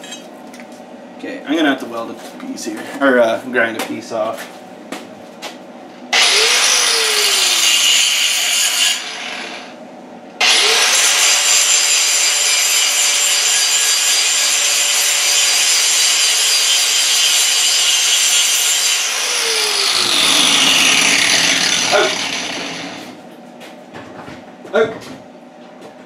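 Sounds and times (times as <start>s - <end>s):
angle grinder grinding metal: 6.2s - 9.5s, 10.4s - 23.2s.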